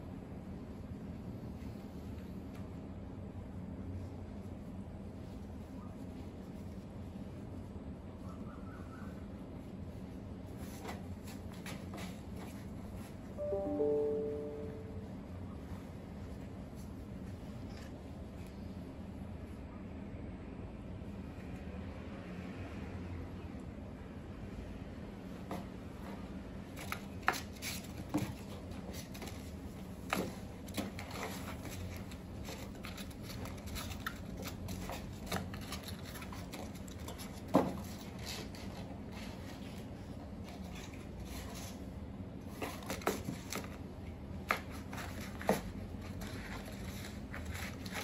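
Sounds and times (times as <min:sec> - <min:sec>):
paper crackling: 0:28.9 - 0:37.4.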